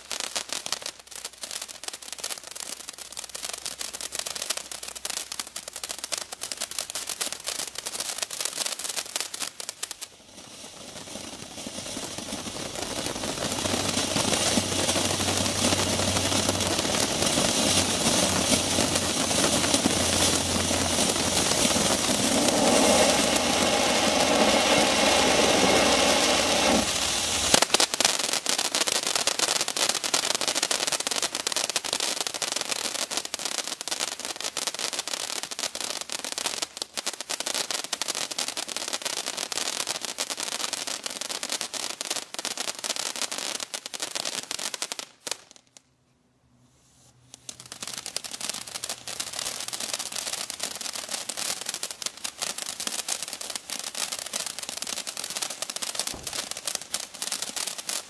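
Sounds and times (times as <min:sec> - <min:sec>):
firework fountain hissing: 0:00.0 - 0:45.6, 0:46.8 - 0:58.0
firework crackling: 0:00.0 - 0:45.9, 0:46.9 - 0:58.0.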